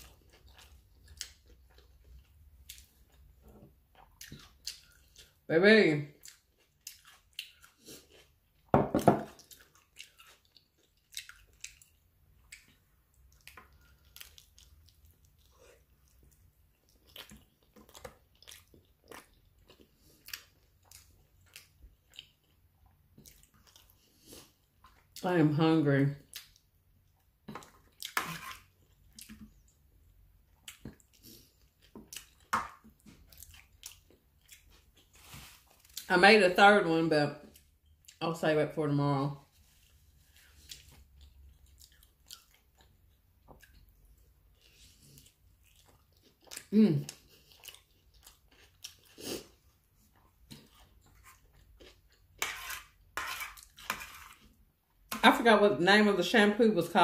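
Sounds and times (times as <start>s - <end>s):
person chewing: 0.0s - 5.5s, 6.1s - 25.2s, 26.2s - 36.1s, 37.4s - 38.2s, 39.4s - 55.2s
fork scraping and tapping on plate: 52.4s - 54.4s.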